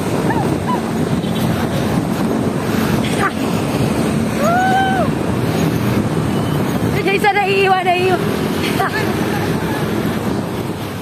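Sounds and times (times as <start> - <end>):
traffic on busy road: 0.0 - 11.0
wind buffeting microphone: 0.0 - 11.0.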